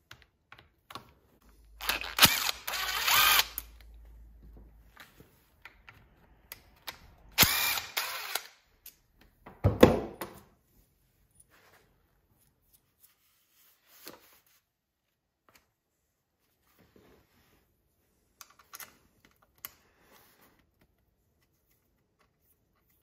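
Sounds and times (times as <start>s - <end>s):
cordless drill running: 1.8s - 3.7s, 7.4s - 8.6s.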